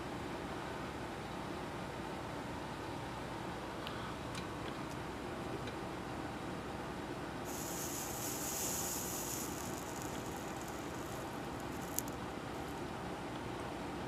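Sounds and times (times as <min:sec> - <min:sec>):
background hum: 0:00.0 - 0:14.0
faint ticks: 0:07.5 - 0:12.8
soldering iron hissing: 0:07.5 - 0:12.8.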